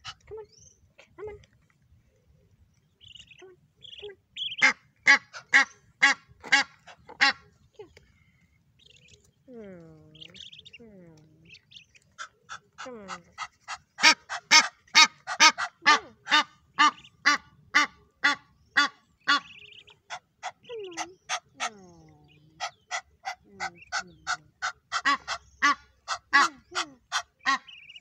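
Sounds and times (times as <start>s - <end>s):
goose honking: 13.7s - 21.4s, 22.6s - 28.0s.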